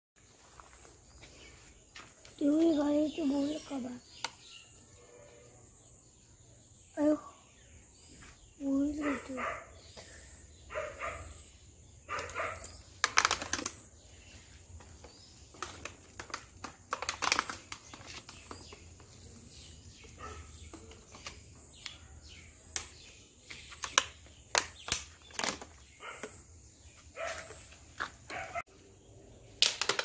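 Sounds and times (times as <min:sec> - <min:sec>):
handling clicks and crackles: 0:12.1 - 0:13.9, 0:15.5 - 0:19.1, 0:29.6 - 0:30.0.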